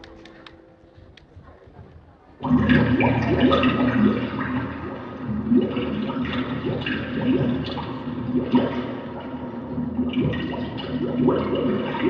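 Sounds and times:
recorded water drips and bubbling: 2.4s - 12.0s.

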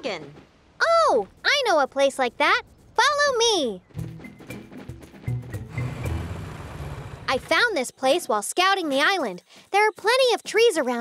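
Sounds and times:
background music with high notes: 3.9s - 7.2s.

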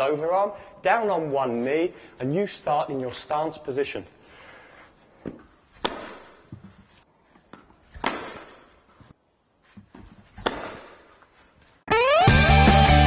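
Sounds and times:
ball bouncing on pitch: 5.2s - 6.7s, 7.5s - 8.8s, 10.4s - 11.0s
cricket bat hitting ball: 5.2s - 6.7s, 7.9s - 8.9s, 10.3s - 11.2s.

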